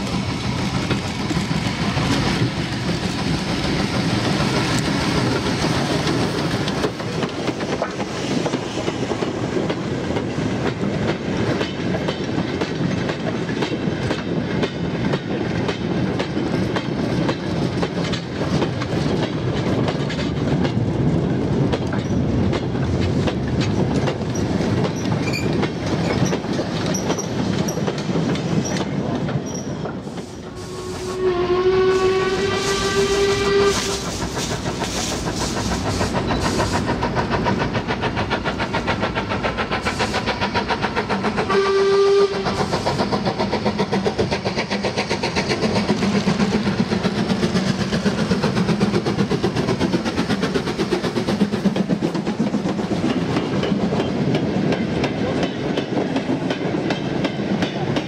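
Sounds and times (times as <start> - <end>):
steam locomotive passing: 0.0 - 58.0.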